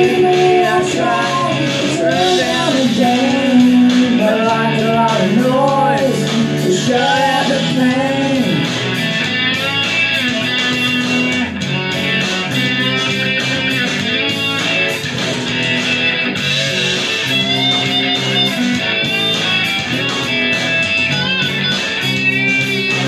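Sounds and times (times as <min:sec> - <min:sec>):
man singing: 0:00.0 - 0:08.8
electric guitar playing: 0:00.0 - 0:23.0.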